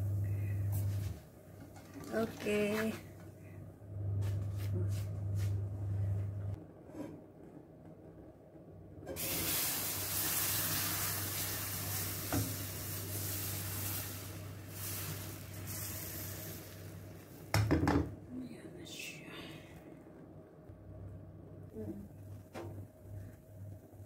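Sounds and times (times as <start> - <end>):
batter sizzling in a pan: 9.2 - 17.5.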